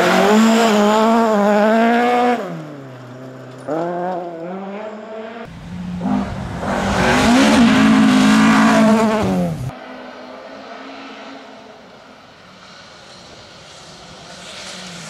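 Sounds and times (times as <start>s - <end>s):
rally car engine revving: 0.0s - 11.6s.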